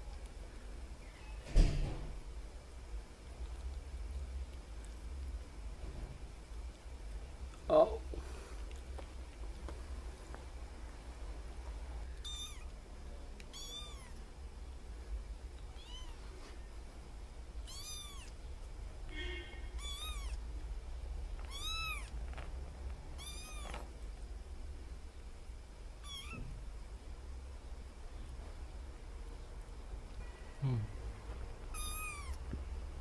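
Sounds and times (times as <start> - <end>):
kittens mewing: 12.2 - 12.7, 13.5 - 14.2, 17.6 - 18.4, 19.7 - 20.4, 21.4 - 22.2, 23.2 - 23.9, 26.0 - 26.5, 31.7 - 32.4.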